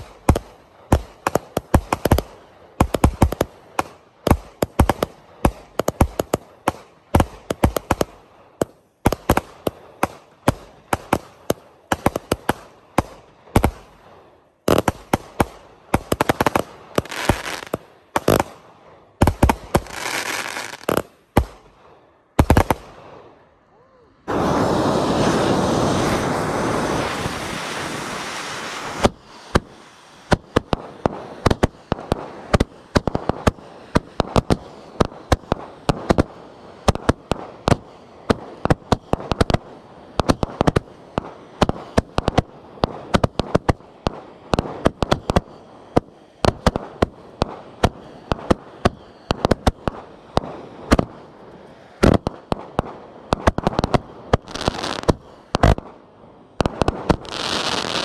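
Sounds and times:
firework bangs: 0.0 - 14.0, 14.7 - 18.6, 19.2 - 21.7, 22.4 - 23.0, 24.2 - 58.0
firework hissing rush: 16.0 - 18.4, 19.3 - 21.0, 24.2 - 37.0, 44.7 - 52.3, 53.3 - 55.8, 56.6 - 58.0.

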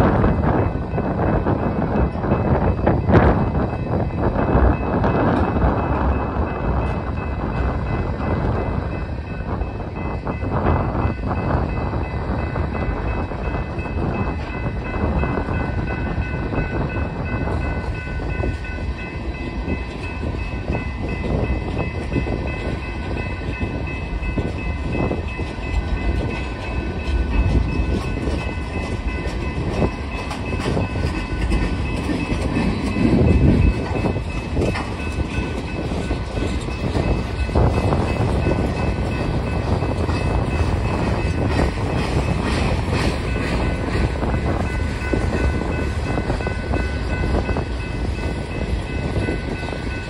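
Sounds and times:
train wheels rumbling: 0.0 - 50.0
wheels clicking over rail joints: 25.2 - 47.6.

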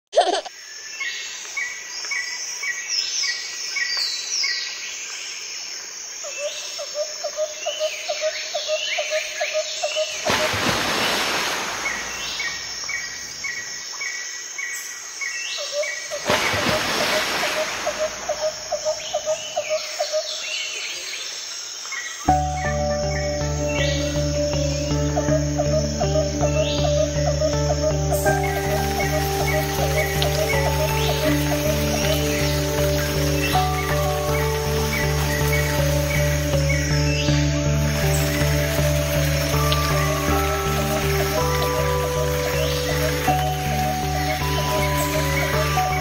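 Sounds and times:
insect drone: 0.2 - 46.0
birds chirping and whistling: 22.3 - 46.0.

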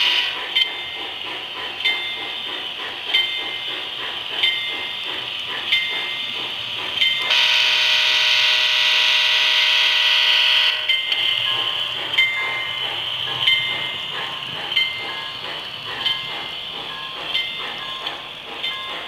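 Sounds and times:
locomotive bell ding: 0.0 - 6.4, 10.7 - 19.0
locomotive horn chord blast: 7.3 - 10.9.

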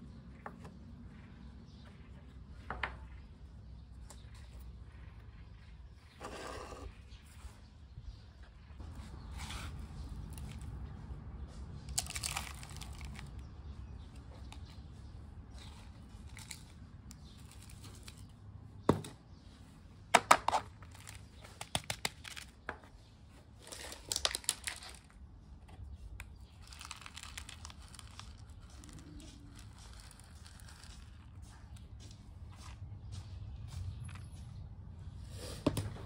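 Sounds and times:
gritty scraping of granules: 4.9 - 7.7, 8.6 - 10.9, 11.8 - 14.8, 23.3 - 25.2, 25.8 - 32.8
scratchy rustling: 26.5 - 33.3.

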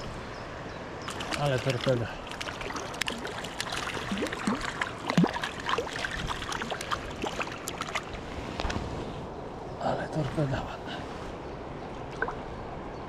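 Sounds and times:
small stream running: 0.0 - 13.0
water splashes and plops: 1.0 - 8.3, 11.9 - 12.5.

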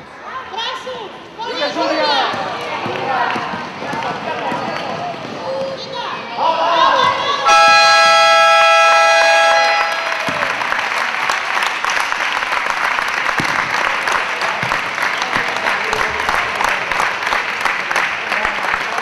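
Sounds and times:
crowd clapping: 7.5 - 19.0.

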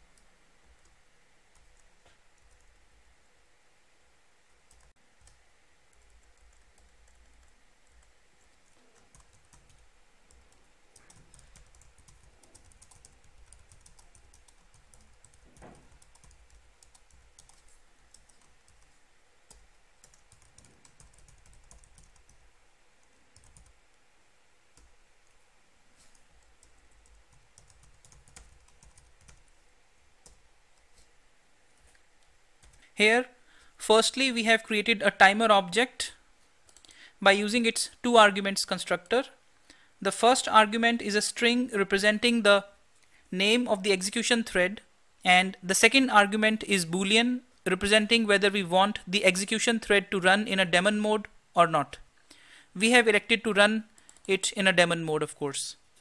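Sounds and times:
faint low hum: 0.0 - 56.0
keyboard typing: 0.2 - 2.8, 4.7 - 22.4, 23.0 - 23.8, 26.0 - 29.6, 30.2 - 30.4, 32.6 - 32.9, 36.7 - 37.0, 54.0 - 54.4.

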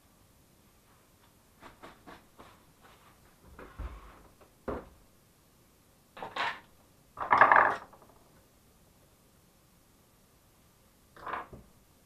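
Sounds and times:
plastic parts rattling: 7.2 - 8.2.

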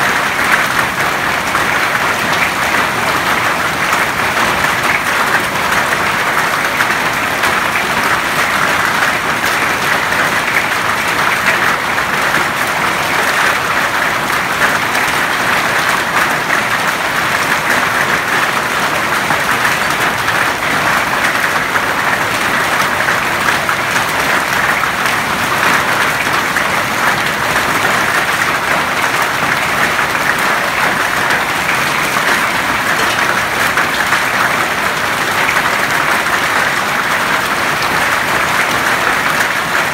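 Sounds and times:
hail and rain pelting ground: 0.0 - 39.9.

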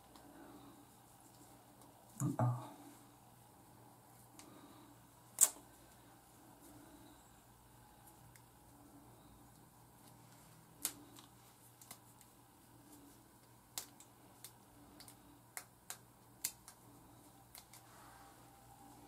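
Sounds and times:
low room hum: 0.0 - 19.0
small clicks and snaps: 5.4 - 5.6, 9.5 - 12.4, 13.4 - 17.9.

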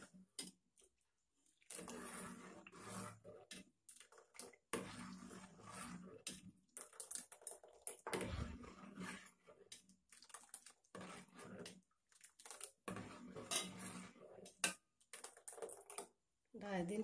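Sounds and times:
ladle scraping metal pot: 1.6 - 16.2
liquid splashing: 6.7 - 14.4.

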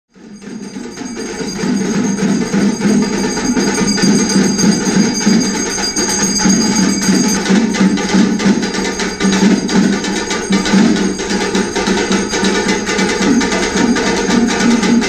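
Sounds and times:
fast drum strokes: 0.1 - 15.0
high steady ringing: 0.1 - 15.0
jingling metal: 0.4 - 15.0.

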